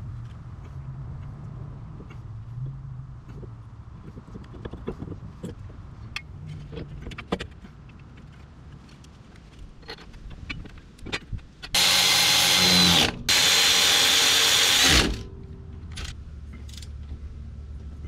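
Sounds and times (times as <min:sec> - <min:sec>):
cordless power tool running: 0:11.8 - 0:15.2.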